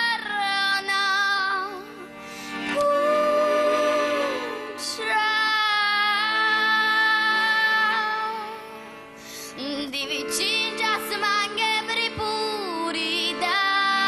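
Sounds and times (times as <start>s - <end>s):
woman singing slow song: 2.7s - 8.6s, 9.5s - 14.0s.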